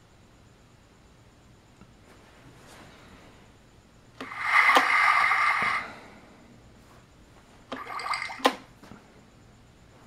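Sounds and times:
toy electronic sound effects: 4.2 - 5.8.

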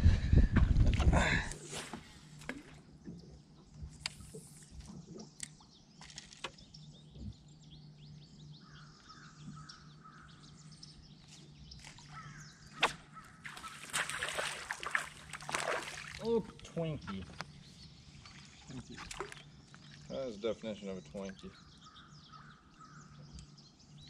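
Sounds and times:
bird calling: 8.4 - 18.9, 19.8 - 23.6
fish splashing at surface: 13.4 - 16.2.

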